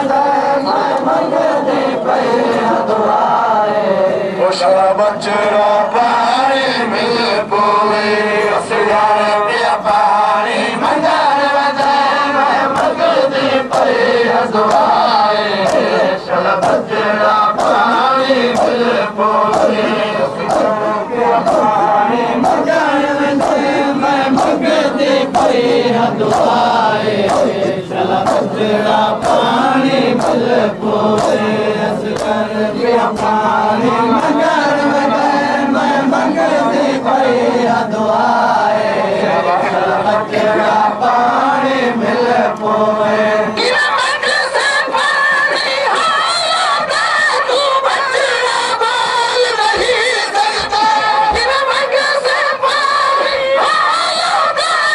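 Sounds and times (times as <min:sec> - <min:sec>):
rhythmic chest slaps: 0:00.0 - 0:03.4, 0:09.8 - 0:54.9
men chanting in unison: 0:00.0 - 0:54.9
hands slapping chest: 0:14.7 - 0:14.9, 0:17.6 - 0:17.8, 0:19.5 - 0:19.8, 0:30.2 - 0:30.4, 0:31.2 - 0:31.4, 0:32.2 - 0:32.4.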